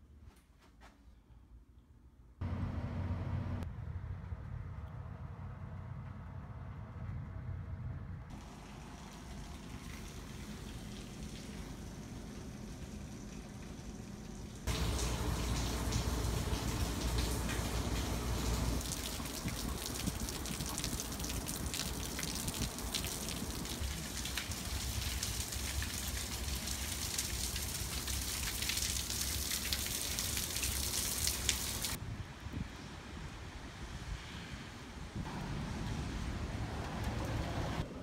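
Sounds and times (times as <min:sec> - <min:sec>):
water streaming off roof: 0:08.3 - 0:32.0
heavy rain on pavement: 0:14.7 - 0:32.0.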